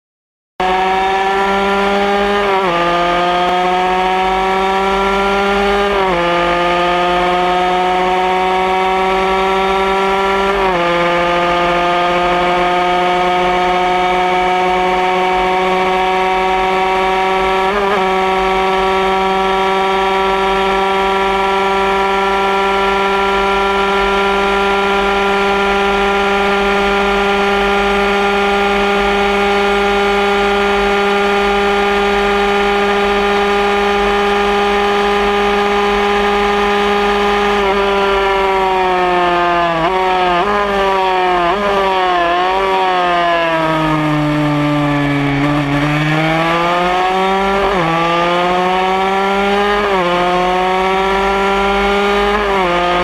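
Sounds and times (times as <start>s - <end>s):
motorcycle engine at full throttle: 0.6s - 53.0s.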